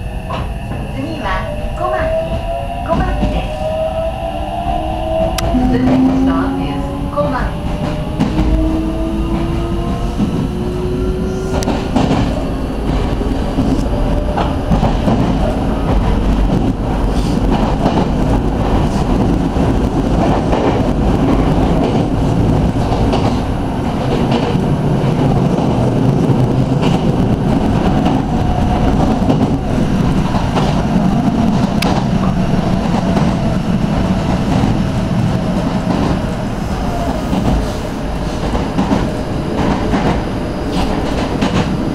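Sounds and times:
train motors whining: 4.5 - 14.0
rail clicks: 4.5 - 41.9.

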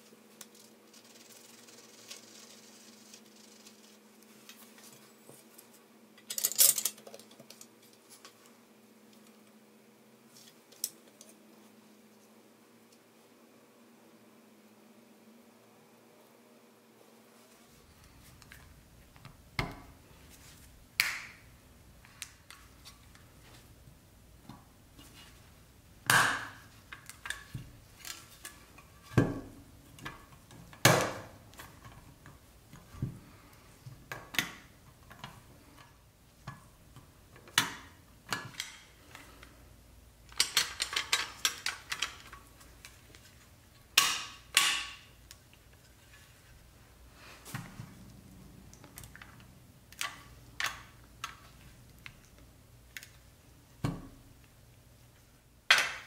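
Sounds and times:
metal toy parts clicking and clinking: 6.2 - 7.7, 40.3 - 42.3.

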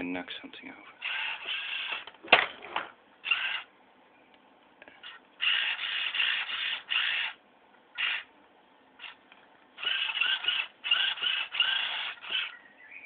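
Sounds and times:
servo motors whirring: 1.0 - 2.1, 3.2 - 3.7, 5.0 - 7.4, 8.0 - 8.3, 9.8 - 12.6.

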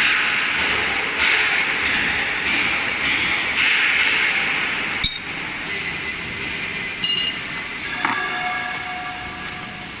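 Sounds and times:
spanners clinking on metal: 7.0 - 9.6.

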